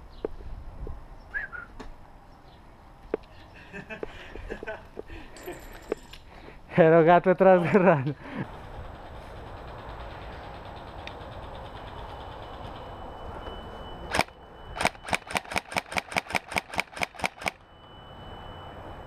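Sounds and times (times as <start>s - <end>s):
airsoft rifle shots: 14.1s - 17.6s.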